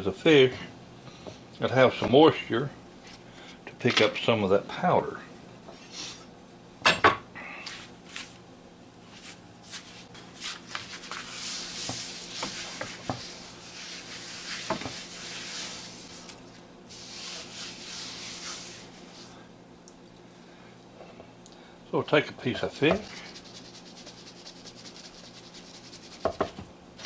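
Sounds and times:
rubbing on wooden cutting board: 9.1 - 19.4, 22.6 - 26.5.

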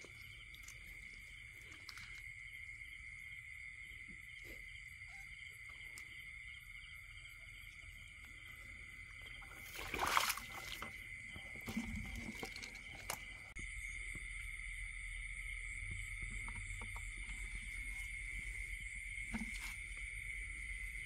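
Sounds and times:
crickets chirping: 0.0 - 21.0
splash of shallow water: 9.6 - 10.9.

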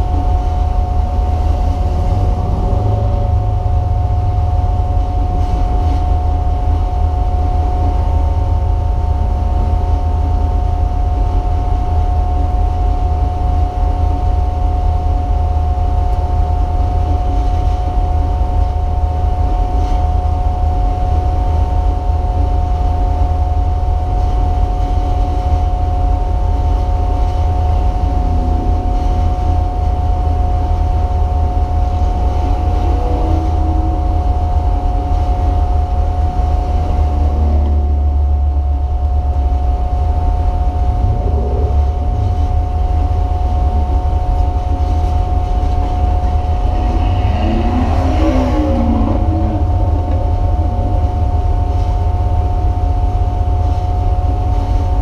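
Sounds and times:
race car engine and road drone: 0.0 - 6.1, 27.0 - 53.1
constant whine: 0.0 - 55.0.

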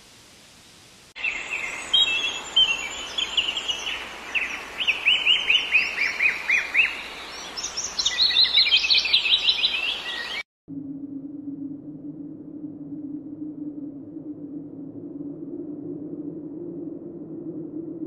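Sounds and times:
songbirds chirping: 1.2 - 10.4.

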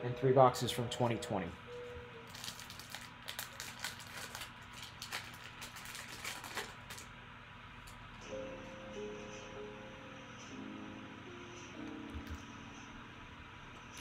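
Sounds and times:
foil wrapper crackling: 2.2 - 7.1.

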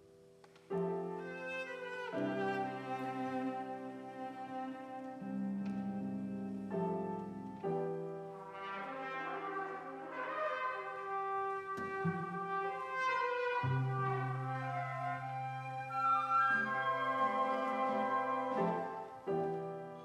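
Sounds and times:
chamber orchestra playing chords: 11.1 - 19.6.

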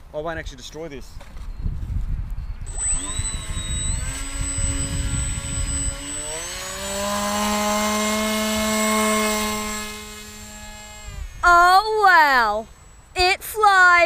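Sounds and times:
electric motor and propeller whining: 2.6 - 12.6.

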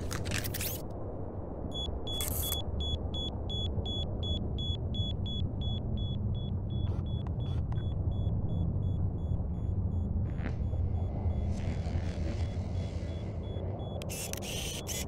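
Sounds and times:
steady low rumble: 0.0 - 15.0
rapid electronic beeping: 4.3 - 15.0.

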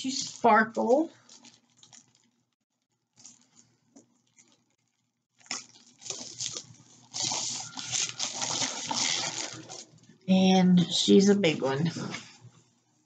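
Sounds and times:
plastic bag rustling: 0.0 - 2.5, 3.1 - 10.2.

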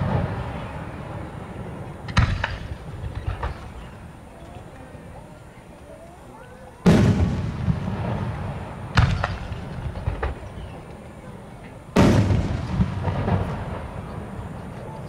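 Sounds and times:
firework booms echoing: 0.0 - 1.2, 2.0 - 4.2, 6.8 - 10.8, 11.9 - 14.6
faint cracks and pops: 2.1 - 5.0.

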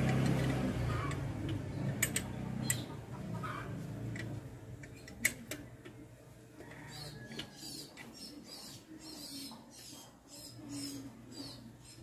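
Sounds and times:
hand tools clicking on metal: 0.0 - 2.9.

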